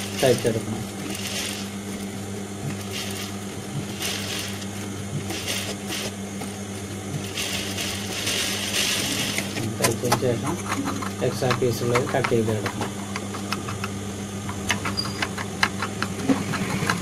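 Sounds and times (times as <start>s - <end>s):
motor hum: 0.0s - 17.0s
sewing machine stitching: 14.6s - 17.0s.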